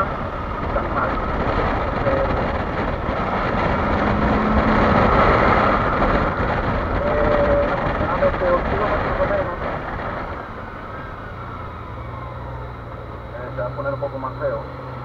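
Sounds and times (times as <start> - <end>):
wind rush: 0.0 - 13.3
motorcycle engine running: 0.0 - 15.0.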